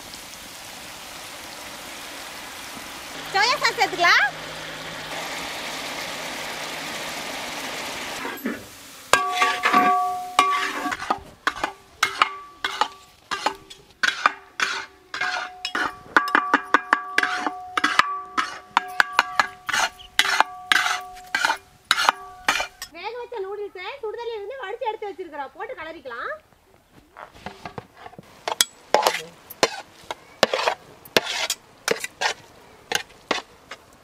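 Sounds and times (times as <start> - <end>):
eggs sizzling in oil: 0.0 - 23.0, 28.2 - 34.0
metal spatula scraping pan: 8.2 - 22.9, 27.5 - 33.8
spatula clanking against pan: 9.2 - 22.9.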